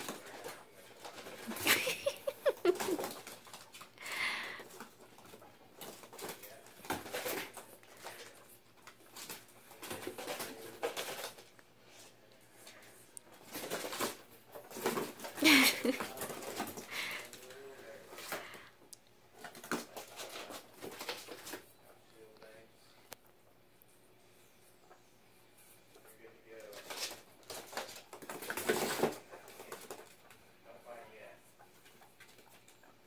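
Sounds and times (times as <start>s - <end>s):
guinea pigs scurrying and pattering: 0.0s - 33.0s.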